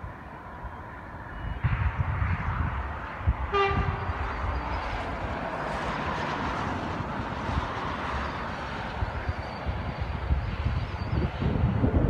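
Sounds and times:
steady rushing noise: 0.0 - 12.0
wind rumbling on microphone: 0.0 - 12.0
train horn toot: 3.5 - 4.8.

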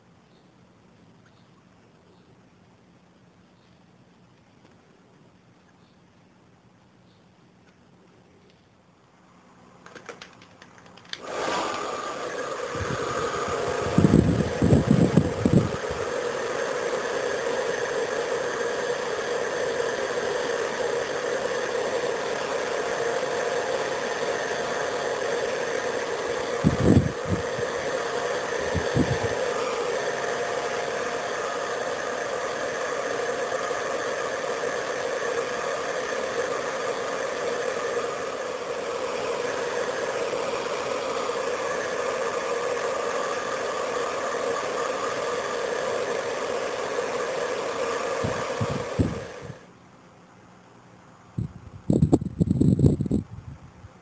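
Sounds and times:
hair dryer running: 11.2 - 49.7.

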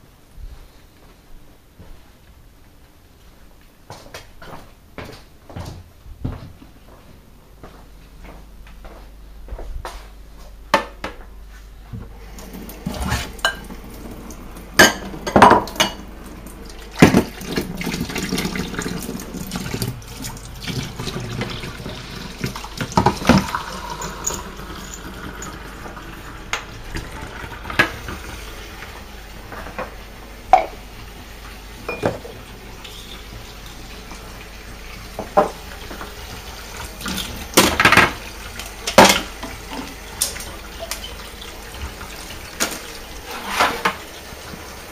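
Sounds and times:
tap water running: 12.0 - 44.9
crockery clattering in sink: 14.8 - 16.1.

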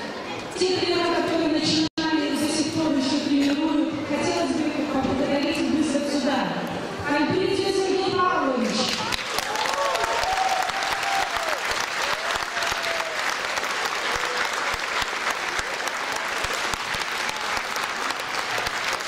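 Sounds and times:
crowd applauding: 8.9 - 19.0.

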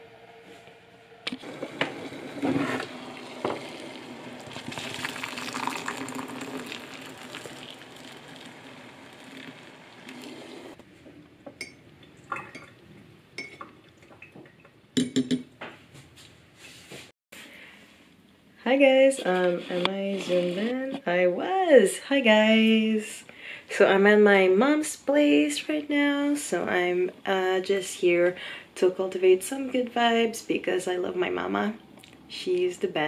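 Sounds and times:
water pouring into a mug: 1.4 - 10.8.

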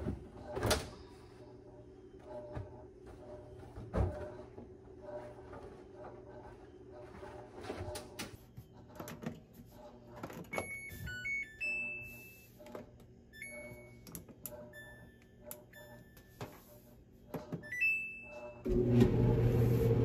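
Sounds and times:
dryer low rumble: 0.0 - 11.9, 17.2 - 20.0.

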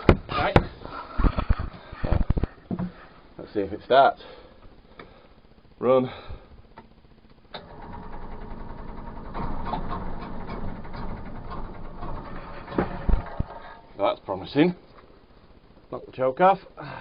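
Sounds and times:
electric starter cranking: 7.5 - 13.9
engine knocks: 7.6 - 13.8.

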